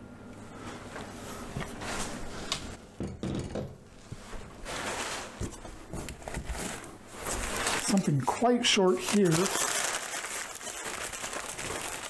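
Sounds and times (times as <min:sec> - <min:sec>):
packing paper crinkling: 0:06.2 - 0:12.0.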